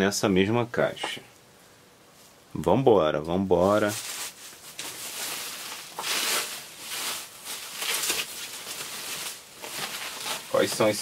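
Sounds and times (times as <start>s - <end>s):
plastic wrapping crinkling: 3.6s - 11.0s.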